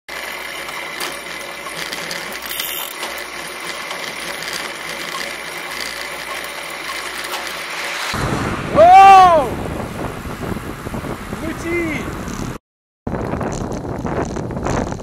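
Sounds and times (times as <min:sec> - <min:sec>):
bicycle freewheel ticking: 0:00.1 - 0:07.9.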